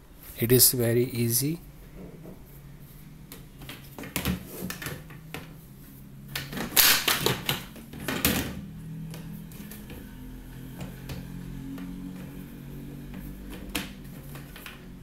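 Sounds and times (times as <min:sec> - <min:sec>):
plastic rollers knocking and clattering: 0:03.6 - 0:05.5, 0:06.4 - 0:08.6, 0:13.0 - 0:15.0.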